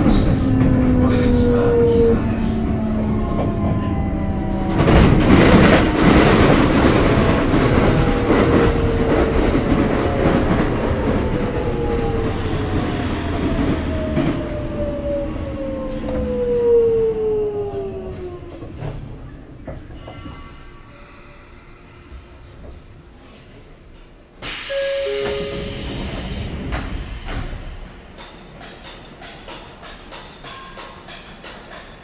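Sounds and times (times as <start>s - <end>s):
wheel and rail rumbling: 0.0s - 32.0s
electric train inverter whine: 24.6s - 27.8s.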